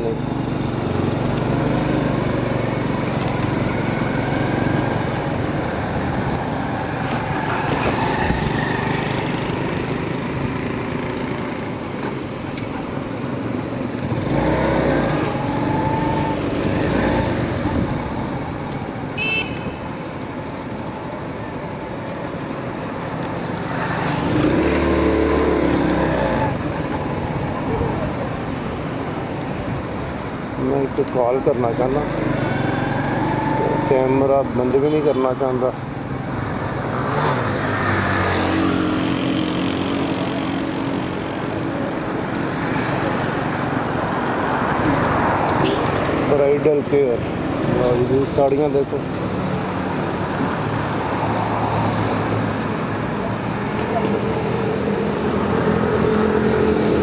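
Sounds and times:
motorcycle running: 0:00.0 - 0:18.6, 0:22.7 - 0:29.6
road traffic noise: 0:00.0 - 0:57.0.

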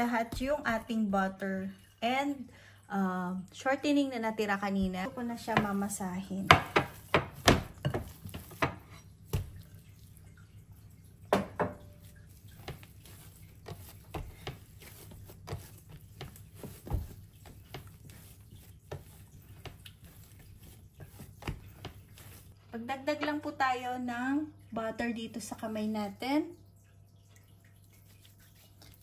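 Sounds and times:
dough kneaded by hand: 0:00.0 - 0:01.4, 0:04.4 - 0:23.4
dough knocking on board: 0:05.4 - 0:09.6.

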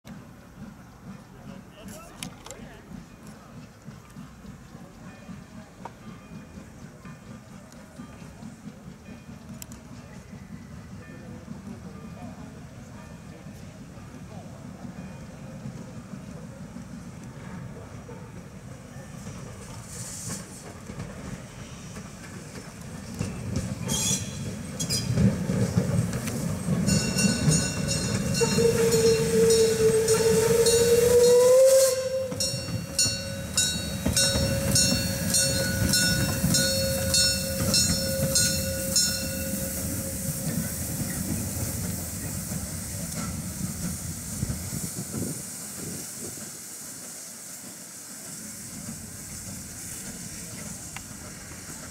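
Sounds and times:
steam locomotive rumble: 0:00.1 - 0:51.9
long steady whistle tone: 0:28.3 - 0:33.6, 0:34.2 - 0:41.2.

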